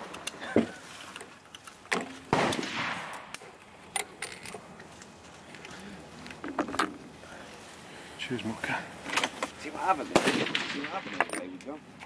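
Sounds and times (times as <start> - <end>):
rifle shots: 2.3 - 3.3, 10.1 - 11.2.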